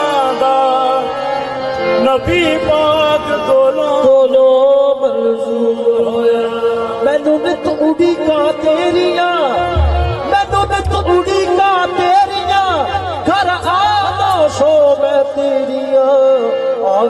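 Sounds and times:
harmonium tones: 0.0s - 17.0s
man singing long bending notes: 1.9s - 17.0s.

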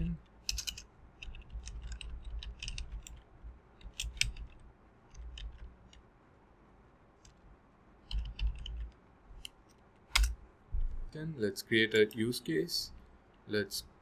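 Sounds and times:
keyboard typing: 0.0s - 6.1s, 8.0s - 9.6s.

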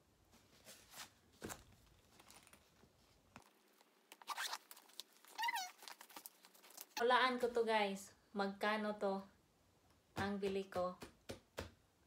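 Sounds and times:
plastic packaging rustling and crinkling: 0.6s - 7.1s.

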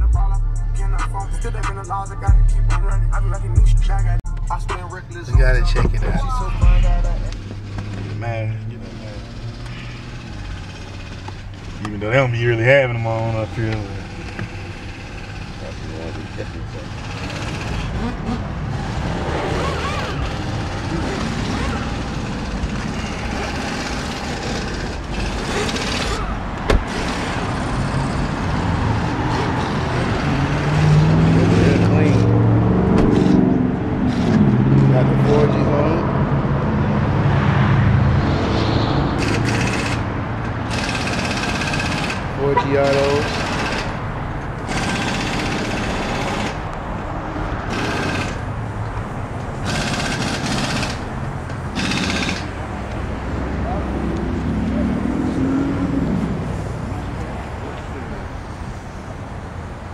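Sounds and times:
road traffic passing: 0.0s - 59.9s
pneumatic impact wrench rattling: 8.9s - 12.1s, 14.0s - 28.6s, 39.2s - 46.7s, 47.7s - 48.5s, 49.6s - 53.0s.

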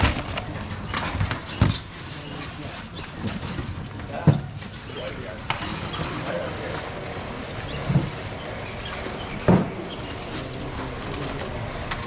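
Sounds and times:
open-air market background noise: 0.0s - 12.0s.

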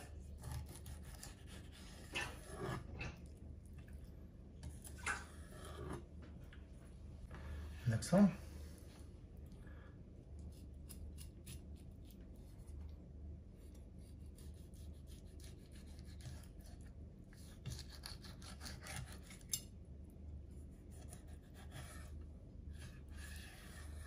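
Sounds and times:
knife scraping fish fillet: 0.0s - 3.2s, 10.5s - 12.2s, 13.6s - 19.7s, 20.5s - 24.0s.

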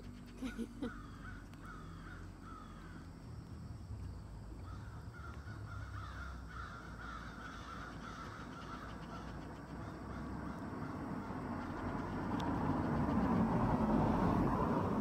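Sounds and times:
faint low rumble: 0.0s - 15.0s
birds calling short notes: 4.6s - 12.3s.

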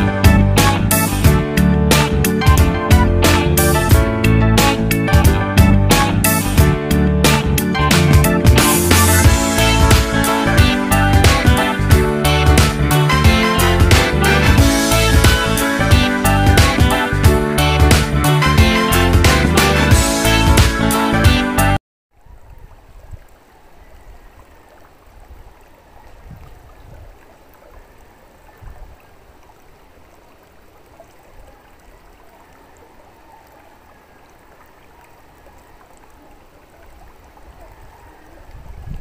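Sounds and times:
background music: 0.0s - 21.8s
rush like running water: 0.0s - 39.0s.

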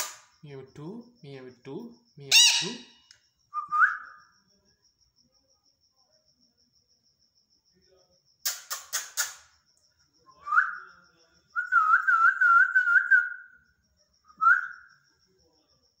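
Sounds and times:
parakeet squawking: 2.3s - 3.0s
parakeet whistling: 2.3s - 3.0s.

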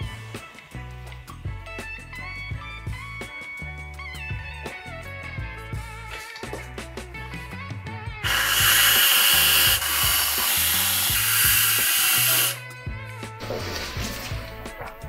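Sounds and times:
aerosol can spraying: 8.2s - 12.6s.

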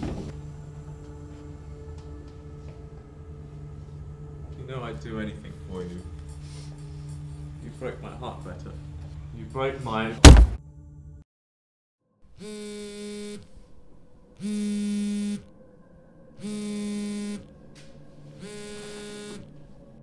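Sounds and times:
phone vibrating on wooden table: 12.4s - 13.5s, 14.4s - 15.5s, 16.4s - 17.5s, 18.4s - 19.5s.

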